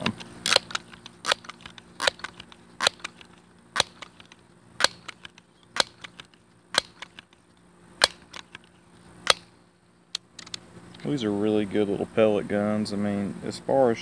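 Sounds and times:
air pistol pump clacks: 0.0s - 7.4s.

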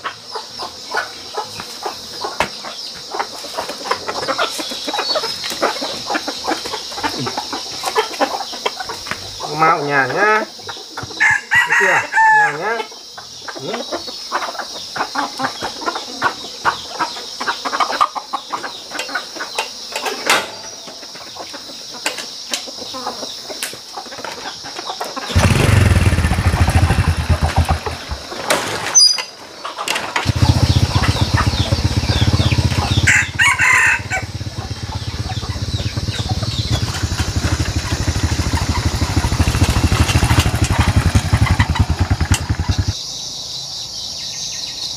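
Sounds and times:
chickens calling: 0.0s - 44.1s
rooster crowing: 11.2s - 12.8s, 30.3s - 39.7s
motorbike engine running: 25.3s - 28.4s, 30.2s - 43.0s.

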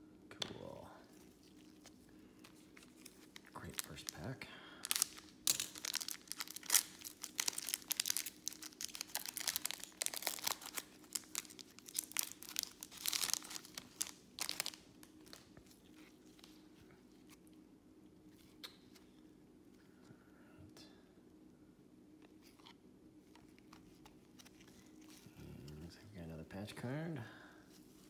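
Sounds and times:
foil wrapper crinkling and tearing: 1.2s - 15.5s.

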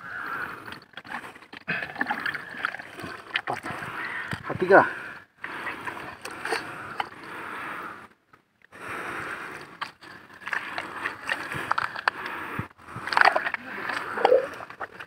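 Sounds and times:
wet mud squelching: 9.3s - 15.0s.

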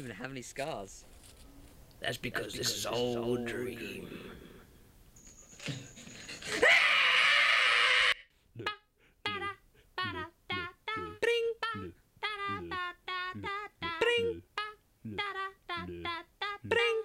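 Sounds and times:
man screaming: 6.5s - 8.7s
solo voice singing: 8.6s - 17.0s.

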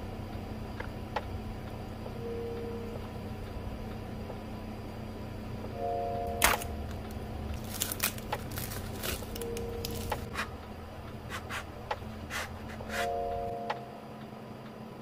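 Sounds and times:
cellophane wrapper crinkling: 6.4s - 10.3s.

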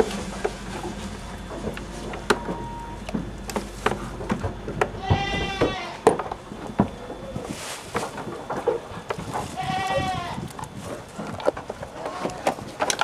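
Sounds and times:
goat bleating: 5.0s - 6.0s, 9.5s - 10.5s.

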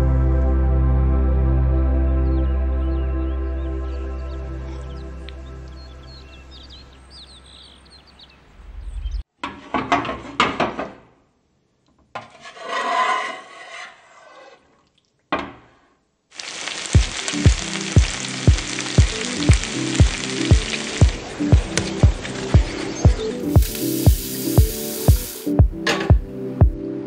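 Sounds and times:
soft music: 0.0s - 6.5s, 17.0s - 27.0s
eggplant sizzling in oil: 16.3s - 25.5s
music with steady beat: 17.0s - 27.0s.

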